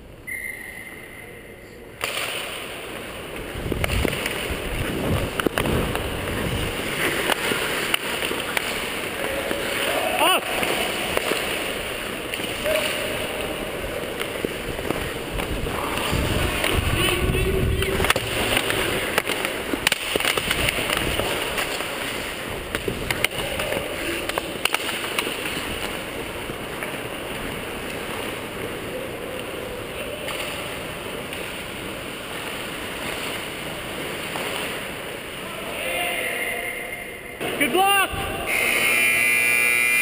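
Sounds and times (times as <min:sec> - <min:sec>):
hockey sticks and puck clacking: 0:02.0 - 0:35.4
skate blades scraping ice: 0:02.1 - 0:28.8.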